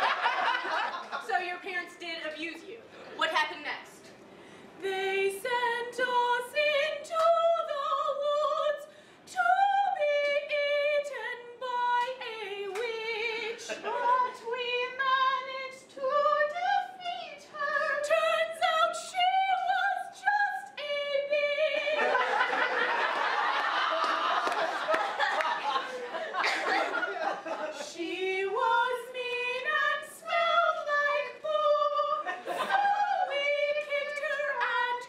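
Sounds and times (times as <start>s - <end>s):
laughter: 0.0s - 1.3s, 21.8s - 28.0s, 32.2s - 33.3s
woman singing unaccompanied: 4.8s - 22.0s, 27.9s - 35.0s.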